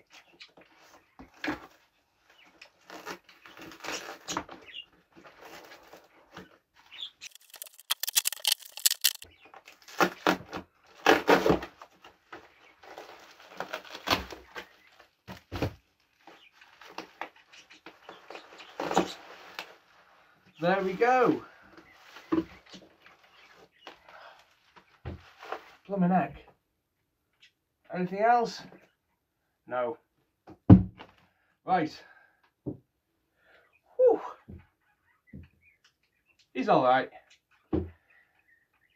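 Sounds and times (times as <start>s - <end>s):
plastic wrapping crackling: 7.2s - 9.2s
scissors cutting plastic wrapping: 7.2s - 9.2s.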